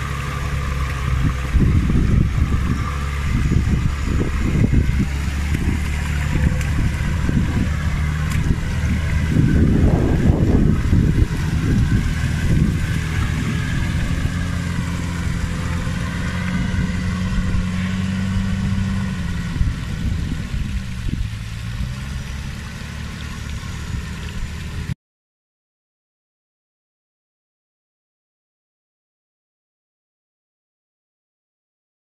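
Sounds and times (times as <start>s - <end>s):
off-road vehicle engine low revs: 0.0s - 25.0s.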